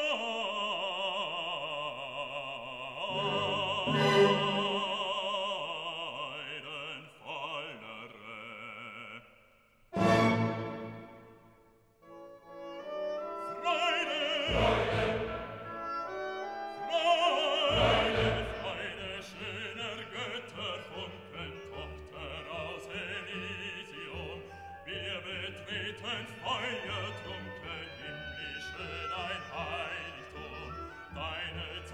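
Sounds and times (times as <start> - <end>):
orchestral music: 3.0 - 5.5, 10.0 - 31.9.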